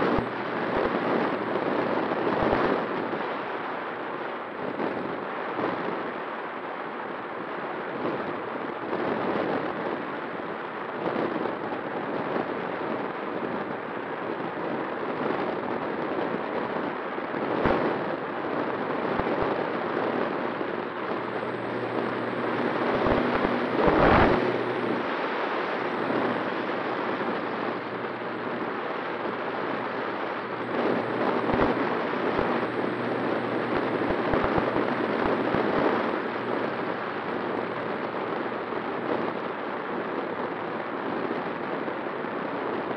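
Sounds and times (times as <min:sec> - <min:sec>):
wind buffeting microphone: 0:11.0 - 0:42.9
propeller motor tone: 0:19.7 - 0:38.1.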